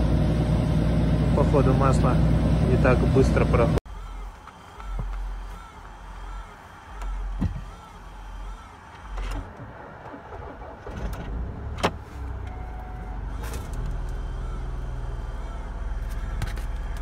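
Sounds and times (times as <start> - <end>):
engine cranking and idling: 4.3 - 17.0.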